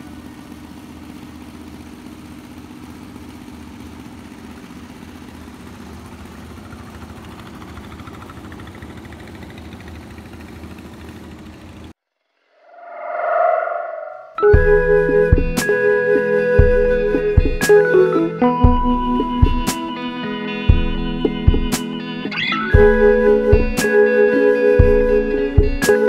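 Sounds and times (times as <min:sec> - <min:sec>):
boat engine running: 0:00.1 - 0:11.9.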